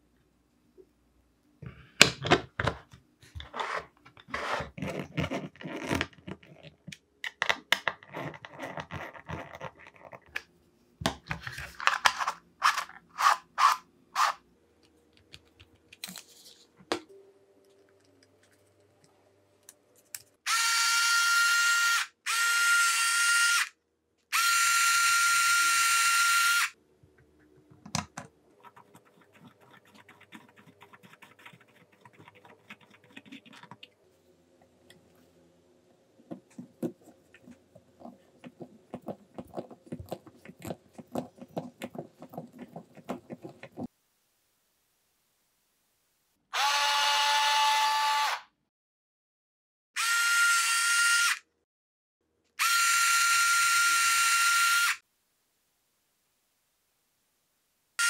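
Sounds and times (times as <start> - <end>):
electric screwdriver motor whine: 24.3 - 26.7.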